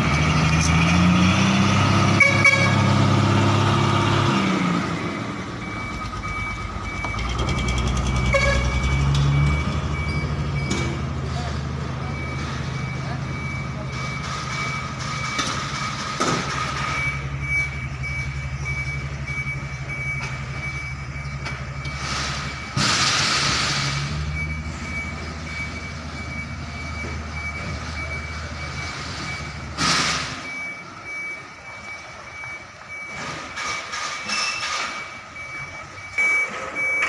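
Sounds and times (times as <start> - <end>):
reversing alarm beeping: 4.5 - 37.0
truck engine idling: 5.3 - 34.3.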